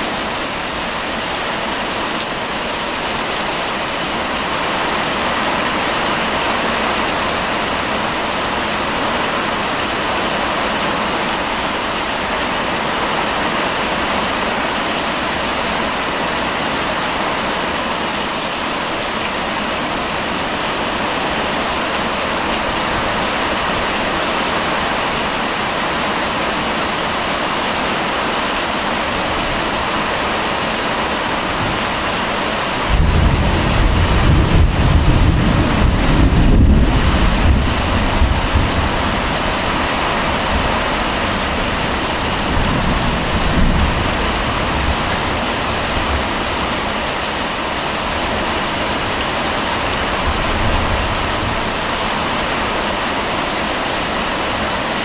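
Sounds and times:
heavy rain pouring: 0.0s - 55.0s
low thunder rumble: 32.8s - 39.6s, 41.6s - 46.6s.

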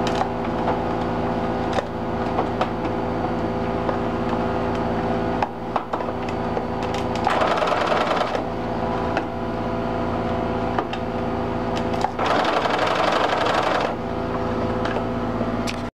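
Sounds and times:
sewing machine motor hum: 6.8s - 9.0s, 11.4s - 15.0s.

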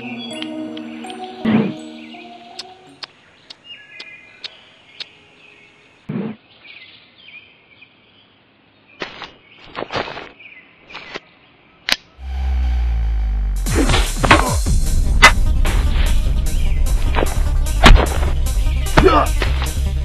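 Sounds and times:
small birds chirping: 0.0s - 12.2s, 16.3s - 19.8s
dull thud: 17.1s - 19.8s.

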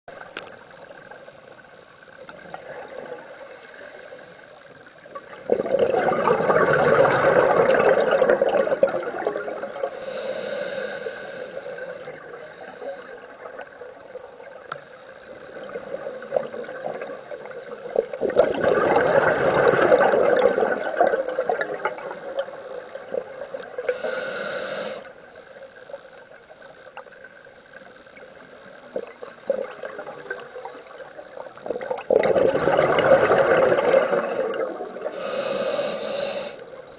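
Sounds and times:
regulator inhalation hiss: 2.6s - 5.1s, 9.7s - 13.4s, 16.9s - 18.2s, 22.0s - 25.7s, 33.8s - 36.9s
exhaled bubbles gurgling: 4.8s - 25.1s, 26.4s - 36.9s.

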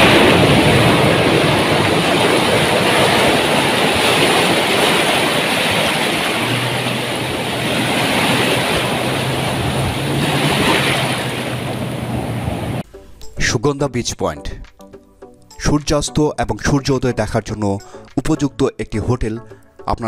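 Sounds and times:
waves breaking on shore: 0.0s - 12.8s.

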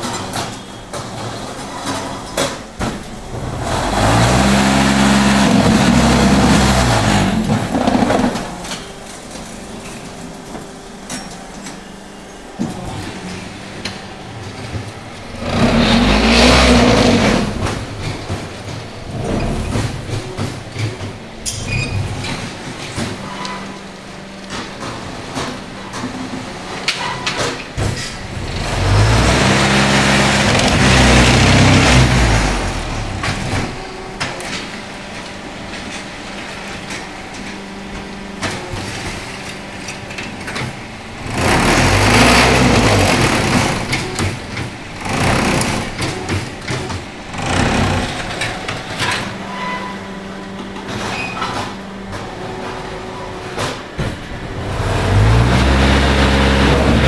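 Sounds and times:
steady motor hum: 2.4s - 26.9s, 27.7s - 57.0s
machine vibration rumble: 2.8s - 10.2s, 11.9s - 23.4s, 28.0s - 35.8s, 40.6s - 51.1s.

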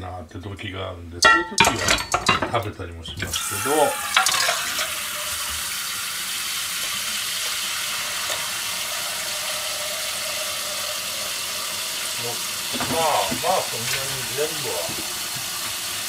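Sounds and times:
tap water splashing into saucepan: 3.2s - 16.0s.

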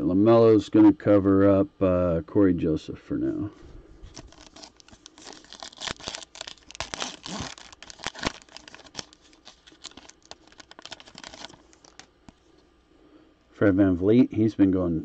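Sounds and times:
foil wrapper tearing and crinkling: 4.1s - 12.1s.

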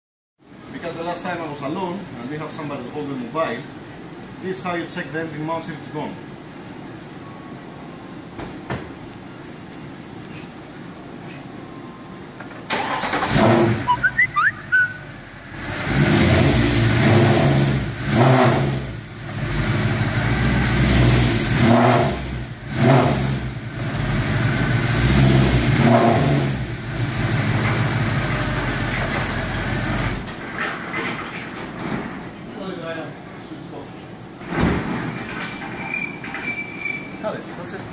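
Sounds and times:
engine starting: 12.4s - 14.3s
engine switched off: 12.7s - 14.4s
engine revving and idling: 12.9s - 14.0s, 15.3s - 30.2s.

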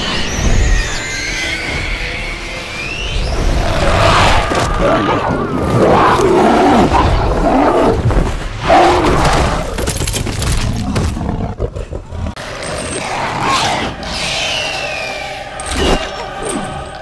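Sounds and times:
creature roaring: 4.4s - 8.0s.

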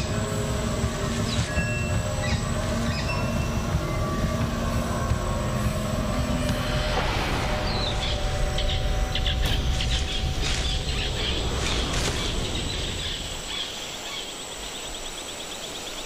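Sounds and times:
low rumble: 0.0s - 13.6s
birds chirping: 0.0s - 16.0s
insects trilling: 0.0s - 16.0s.

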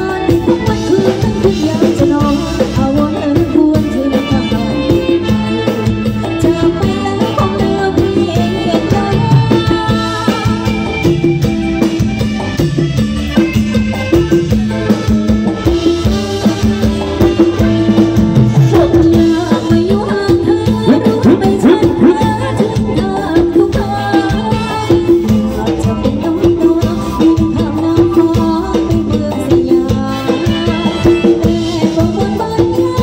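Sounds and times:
woman singing: 0.0s - 11.2s, 18.7s - 33.0s
steady drum beat: 0.0s - 33.0s.

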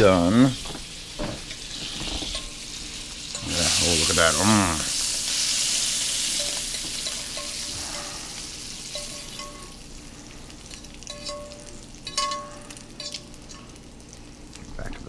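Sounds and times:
bacon sizzling in a pan: 0.0s - 14.8s
metal fork scraping a pan: 11.1s - 13.7s.

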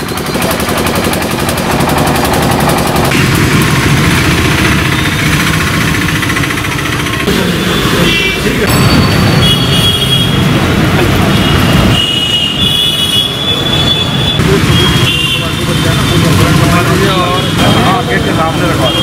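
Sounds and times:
engine chugging: 0.0s - 8.9s
street traffic: 0.0s - 19.0s.

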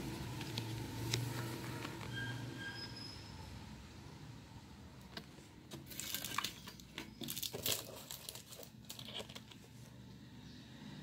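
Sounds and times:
packaging crinkling: 5.8s - 9.8s.

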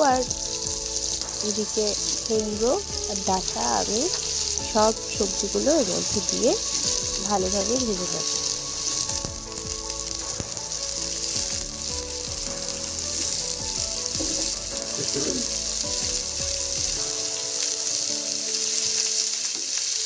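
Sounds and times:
hot oil sizzling: 0.0s - 20.0s.

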